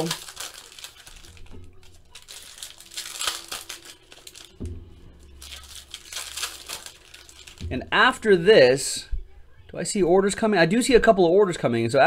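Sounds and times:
foil wrappers crinkling: 0:00.0 - 0:08.3.

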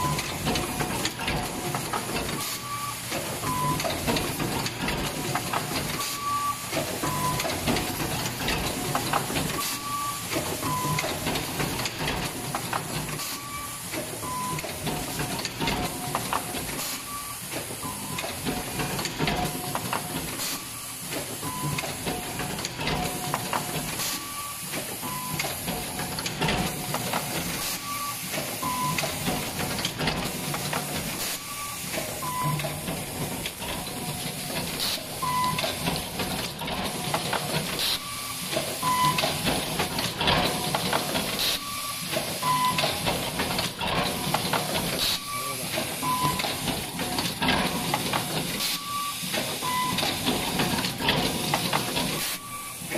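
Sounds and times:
machine clicking: 0:38.5 - 0:52.9.

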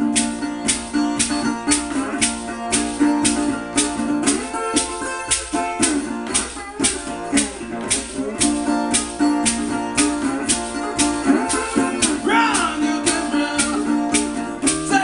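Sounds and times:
slide guitar blues: 0:00.0 - 0:15.0.

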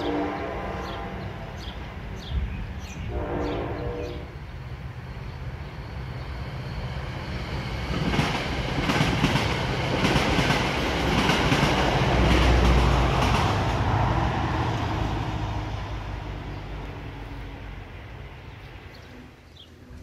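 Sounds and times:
train passing at speed: 0:00.0 - 0:20.0
train wheels clicking on rails: 0:04.8 - 0:17.4.

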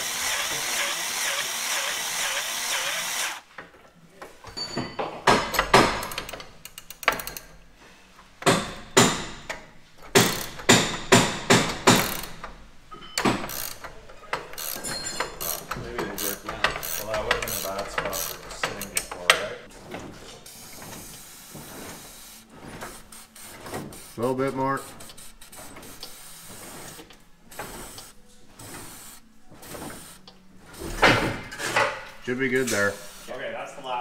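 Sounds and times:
ratchet wrench clicking: 0:06.0 - 0:07.5, 0:10.2 - 0:10.7, 0:11.8 - 0:12.5, 0:13.4 - 0:13.9, 0:14.5 - 0:19.1.

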